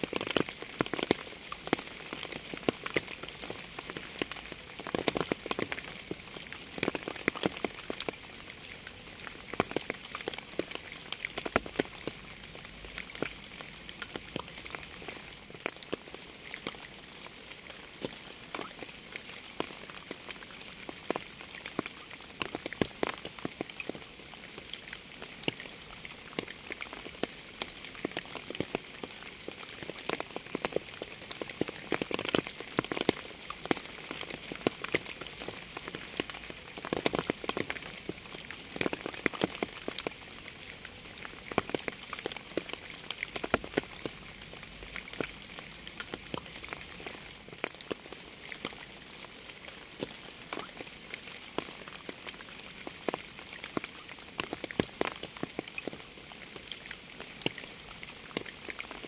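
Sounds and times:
steady rain: 0:00.0 - 0:59.0.

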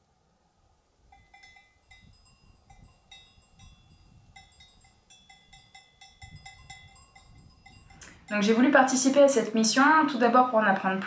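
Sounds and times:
sheep bells clinking: 0:01.1 - 0:09.0.

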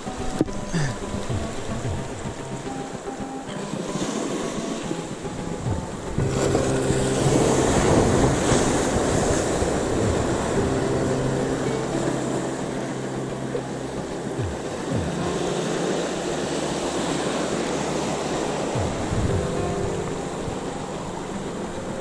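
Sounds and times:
surf washing against rocks: 0:00.0 - 0:22.0
wind on microphone: 0:00.0 - 0:22.0.

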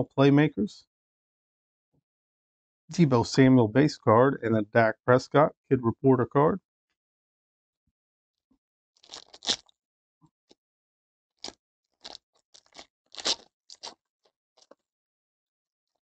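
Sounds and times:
foil pack crinkling and tearing: 0:09.0 - 0:09.7, 0:12.0 - 0:14.0.

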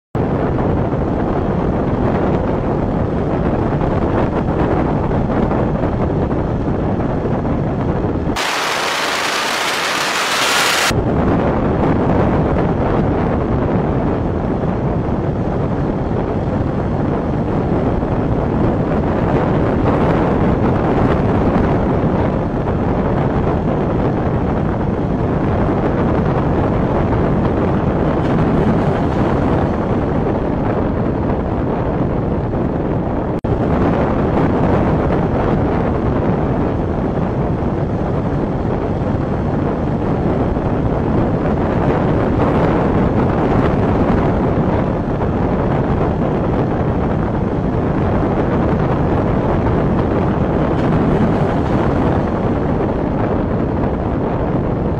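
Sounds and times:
wind buffeting microphone: 0:00.2 - 0:54.9
road rumble: 0:05.8 - 0:11.1, 0:13.9 - 0:33.8, 0:46.0 - 0:54.6
even high hiss: 0:08.4 - 0:10.9.

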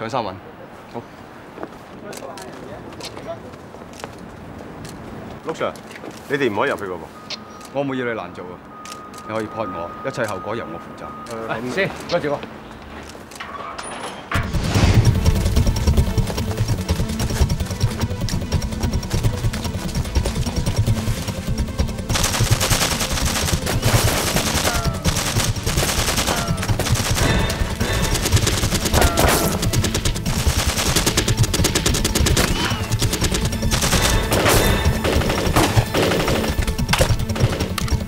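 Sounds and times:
background music: 0:14.3 - 0:38.0
rapid gunfire bursts: 0:14.5 - 0:38.0.

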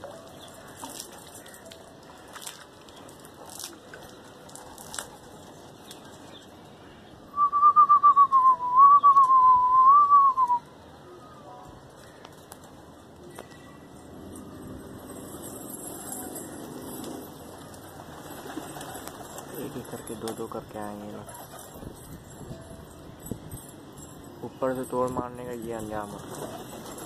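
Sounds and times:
warbling human whistle: 0:07.3 - 0:10.6.

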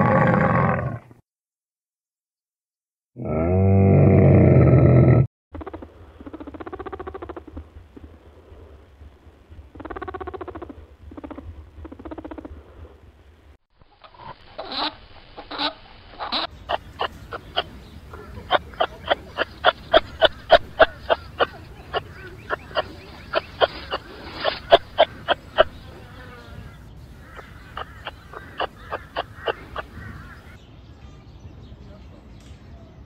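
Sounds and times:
camel calling: 0:15.5 - 0:30.6
rabbit soft low calls: 0:16.7 - 0:30.6.

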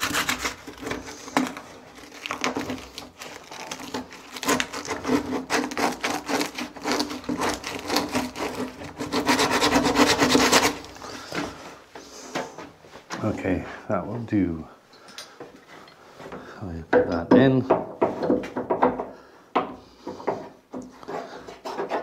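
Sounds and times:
sandpaper rasping in wood: 0:00.0 - 0:11.0.

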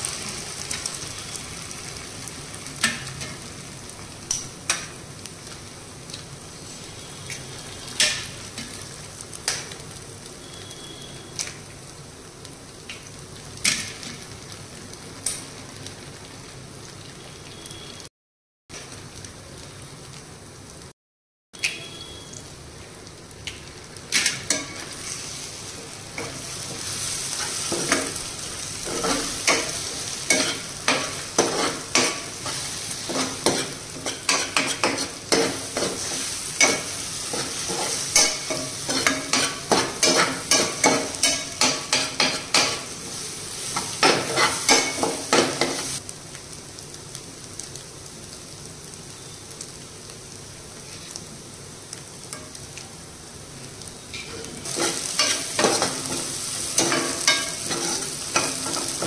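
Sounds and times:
eggs sizzling in a pan: 0:00.0 - 0:18.1, 0:21.6 - 0:59.0
spatula scraping a pan: 0:28.9 - 0:42.7, 0:54.3 - 0:59.0.

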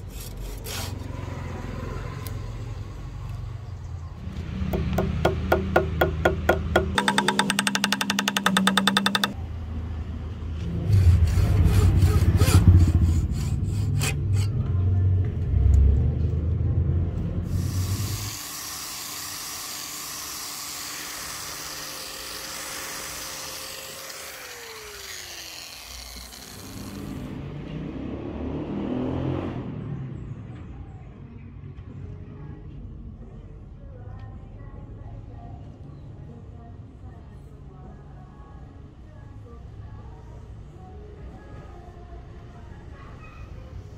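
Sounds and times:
rubbing and grinding on wood: 0:04.8 - 0:09.4
electric angle grinder running: 0:05.0 - 0:09.4, 0:17.5 - 0:27.3.

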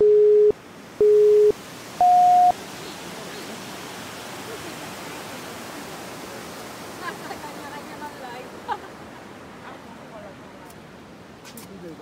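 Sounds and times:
electronic countdown beeps: 0:00.0 - 0:02.5
river water rushing: 0:00.6 - 0:12.0.

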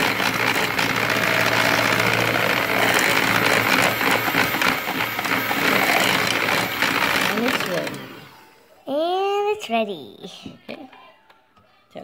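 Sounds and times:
electric hand mixer whisking: 0:00.0 - 0:08.6.

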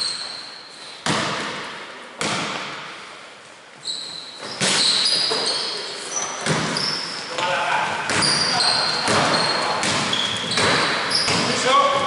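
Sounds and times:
sneakers squeaking: 0:00.0 - 0:02.9, 0:03.7 - 0:12.0
ball hitting rim: 0:01.0 - 0:02.9, 0:06.4 - 0:06.8, 0:07.4 - 0:12.0
basketball bouncing on wooden floor: 0:06.4 - 0:06.9, 0:08.1 - 0:12.0.

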